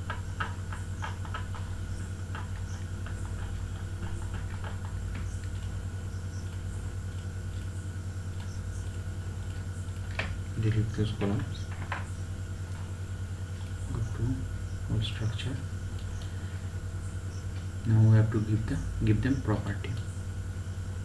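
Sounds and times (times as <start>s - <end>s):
low electrical hum: 0.0s - 21.0s
computer mouse clicking: 2.3s - 10.4s, 15.9s - 16.3s.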